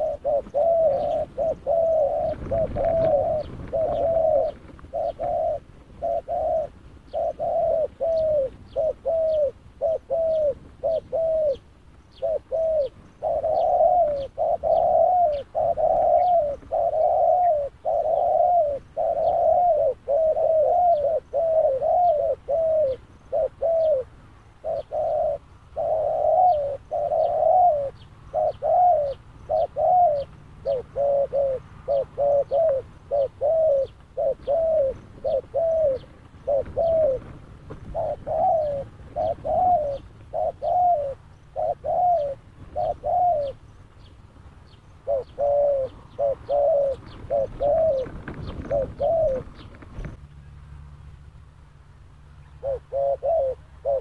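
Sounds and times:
doves cooing: 0.0s - 50.2s, 52.4s - 54.0s.

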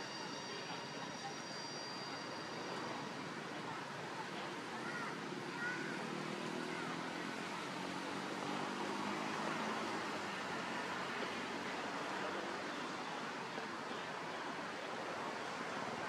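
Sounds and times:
faint high steady tones: 0.0s - 6.0s.

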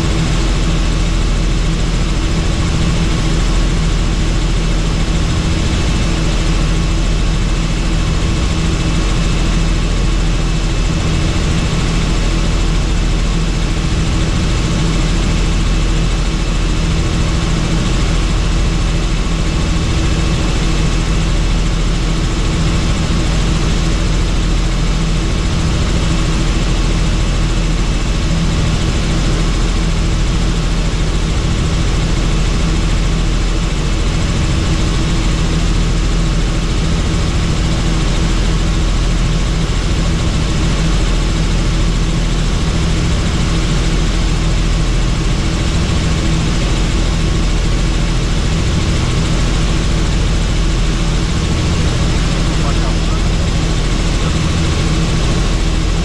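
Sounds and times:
helicopter rotor and engine drone: 0.0s - 56.0s.

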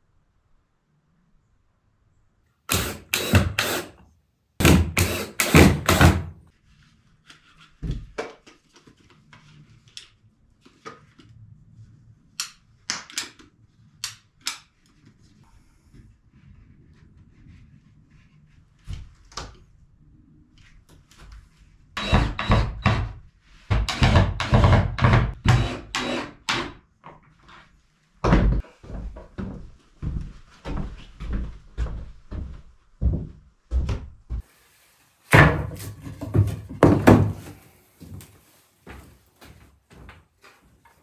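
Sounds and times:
wooden boards knocking: 35.3s - 37.5s.

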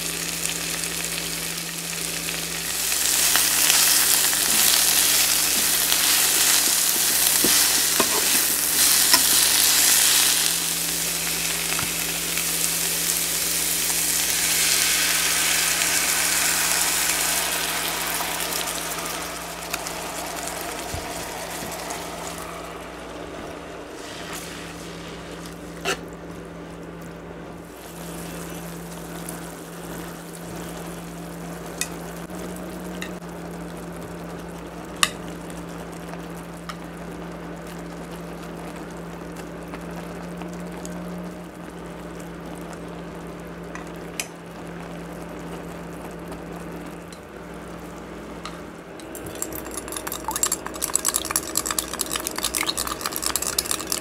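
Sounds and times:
low steady hum: 0.0s - 34.4s
sauce sizzling in frying pan: 0.0s - 54.0s.

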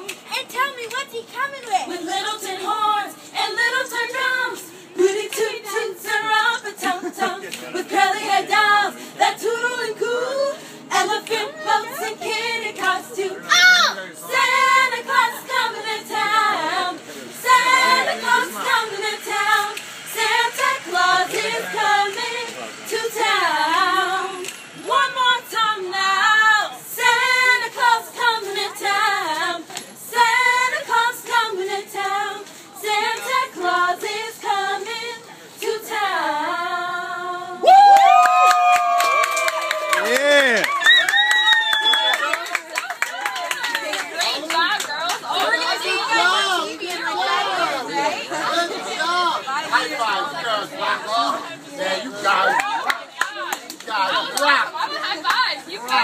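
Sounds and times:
girls singing a cappella: 0.3s - 37.7s.

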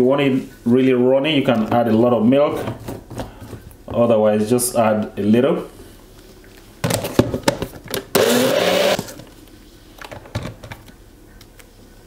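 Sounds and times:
blender motor running: 8.1s - 9.2s.

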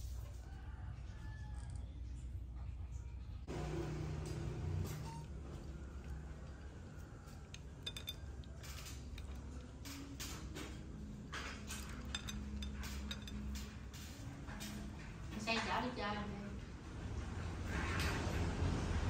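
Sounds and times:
spoon clinking on ceramic bowls: 6.5s - 10.7s, 11.3s - 13.8s.

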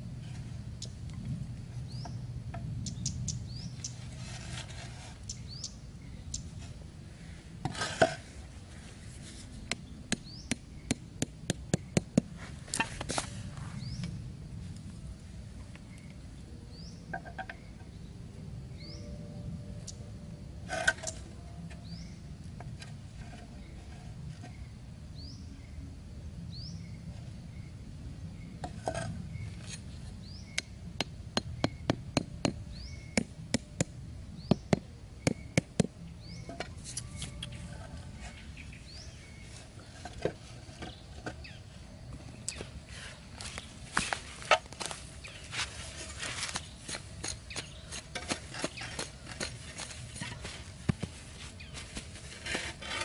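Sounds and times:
hammer knocking stakes into ground: 46.4s - 51.1s.

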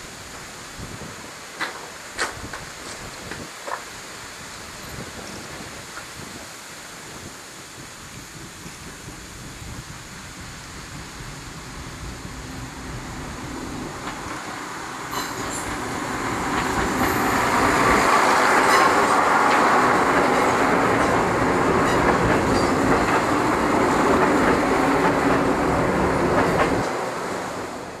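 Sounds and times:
railcar engine passing: 10.8s - 28.0s.

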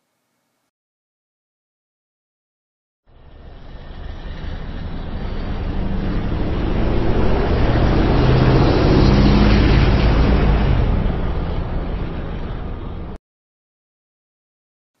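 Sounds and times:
car engine and road noise: 3.1s - 13.2s.

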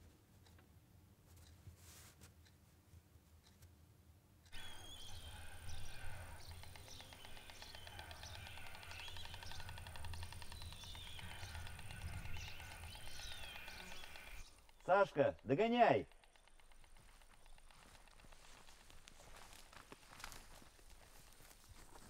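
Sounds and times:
small birds chirping: 4.5s - 22.0s.

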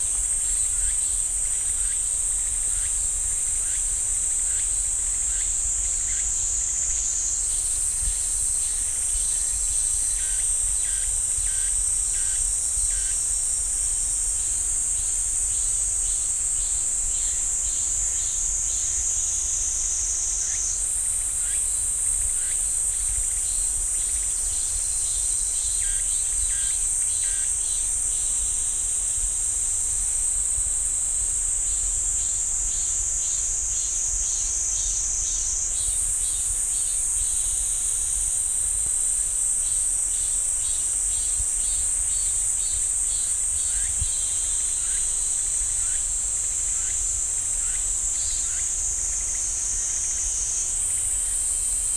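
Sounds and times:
cicadas droning: 0.0s - 51.9s.

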